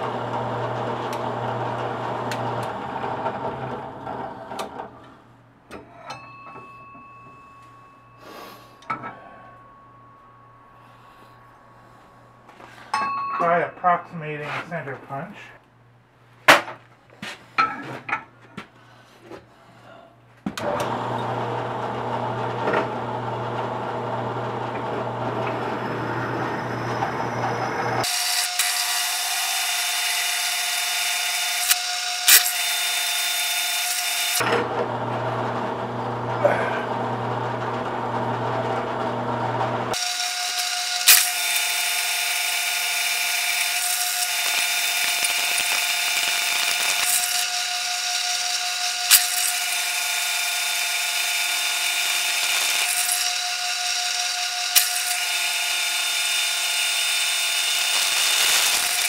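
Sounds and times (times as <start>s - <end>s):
drill press drilling steel: 0.0s - 4.9s, 20.6s - 59.0s.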